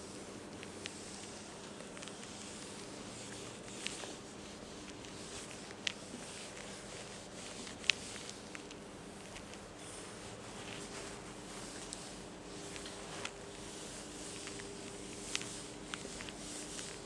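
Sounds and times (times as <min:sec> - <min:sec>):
eraser rubbing on whiteboard: 0:09.3 - 0:17.0.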